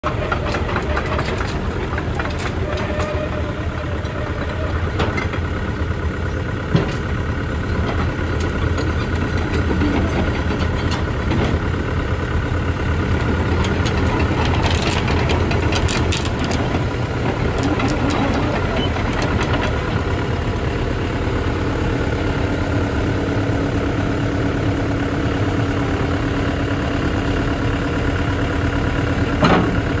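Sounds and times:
excavator diesel engine idling: 0:00.0 - 0:30.0.

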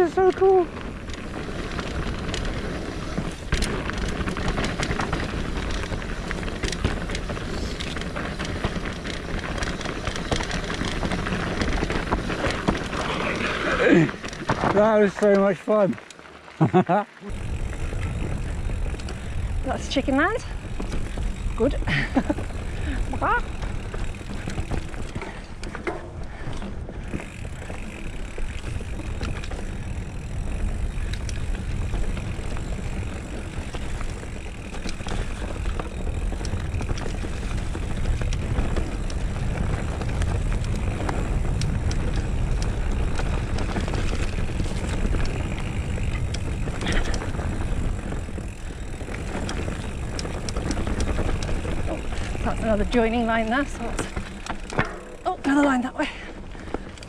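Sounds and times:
bike rattling and clicking: 0:00.0 - 0:57.0
wind and tyre rumble: 0:00.0 - 0:57.0.

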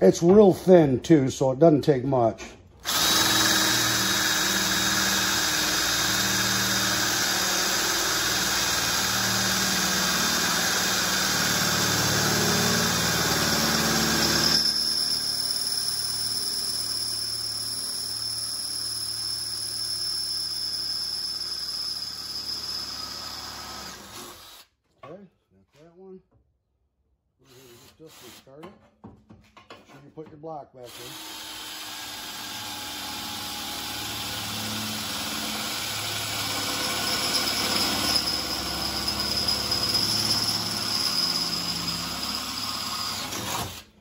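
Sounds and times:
drill high whine: 0:02.8 - 0:24.6, 0:30.9 - 0:43.7
cordless drill grinding through metal: 0:02.8 - 0:24.7, 0:27.4 - 0:28.6, 0:30.8 - 0:44.0.

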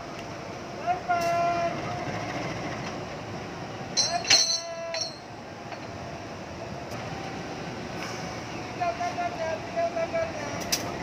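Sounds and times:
locomotive idling: 0:00.0 - 0:11.0
metallic coupling clank: 0:04.0 - 0:05.2.

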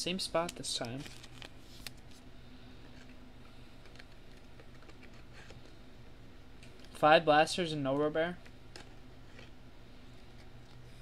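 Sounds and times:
low steady hum: 0:00.0 - 0:11.0
plastic card sleeve rustling: 0:00.4 - 0:05.8.

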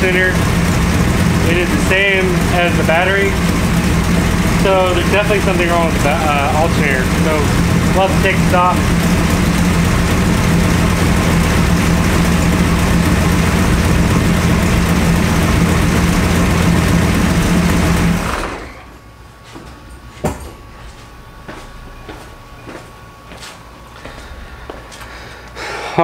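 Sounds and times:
car engine idling: 0:00.0 - 0:18.8.

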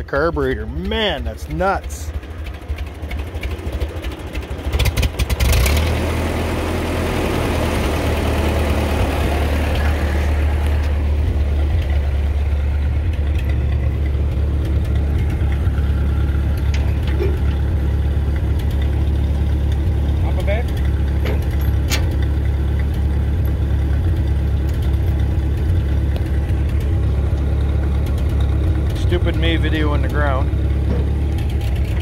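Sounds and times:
tractor engine running roughly: 0:00.0 - 0:32.0.

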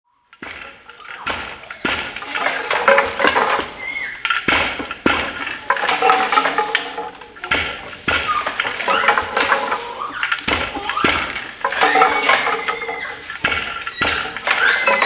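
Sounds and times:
wooden loom knocking: 0:00.3 - 0:15.0.

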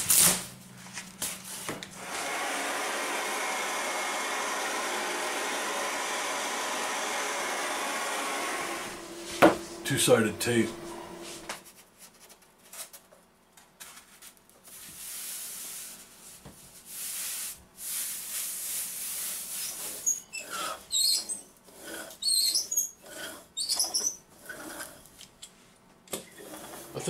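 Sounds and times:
hands rubbing foam sheet: 0:13.8 - 0:20.1
foam squeaking: 0:19.1 - 0:24.9.

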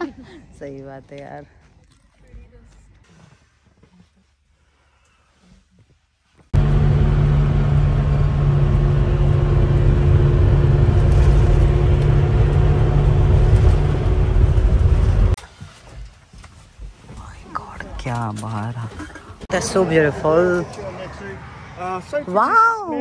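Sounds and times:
minibus engine drone: 0:06.6 - 0:15.4
road noise: 0:06.6 - 0:15.4, 0:17.2 - 0:23.0.

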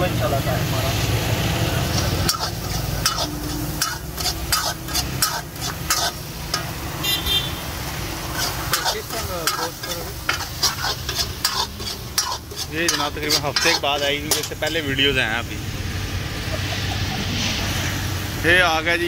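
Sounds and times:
food sizzling in oil: 0:00.0 - 0:19.0
steel ladle scraping iron pan: 0:01.9 - 0:06.8, 0:08.2 - 0:15.0.

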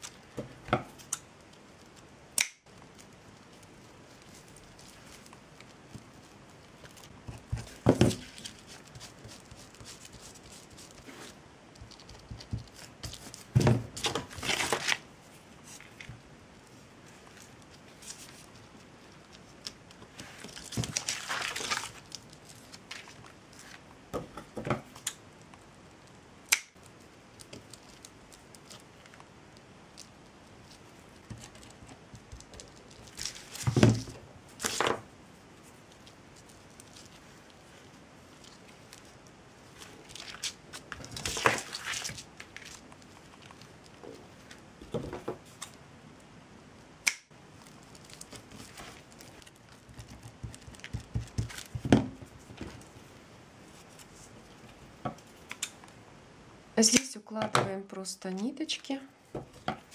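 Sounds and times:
rustling and crinkling: 0:00.0 - 0:26.2, 0:26.8 - 0:45.9, 0:47.3 - 0:56.0, 0:58.2 - 0:59.9
sharp click: 0:47.0 - 0:47.3.

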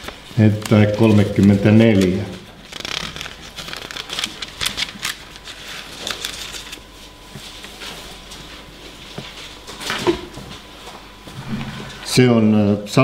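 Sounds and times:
pages rustling and flicking: 0:00.0 - 0:08.4.

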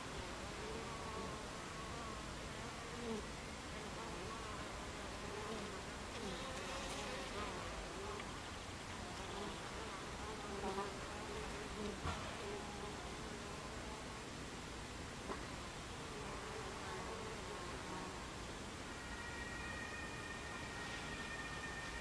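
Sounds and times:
honey bees buzzing: 0:00.2 - 0:14.2.

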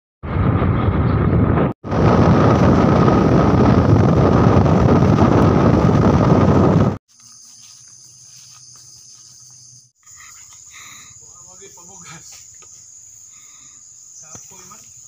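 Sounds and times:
wind buffeting microphone: 0:00.2 - 0:07.0.

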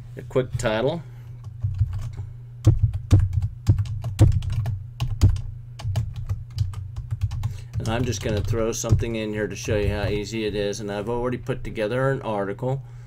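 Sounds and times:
keyboard keys clicking: 0:02.7 - 0:10.2.

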